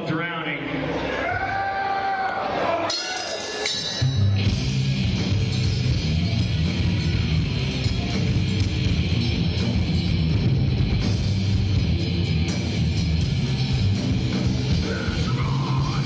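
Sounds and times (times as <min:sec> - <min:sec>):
live rock band playing: 0:03.2 - 0:16.0.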